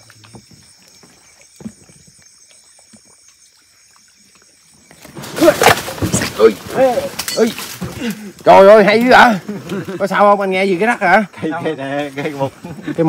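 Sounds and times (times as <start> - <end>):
night insects shrilling: 0.0 - 13.0
crash through brush and leaves: 4.9 - 8.2.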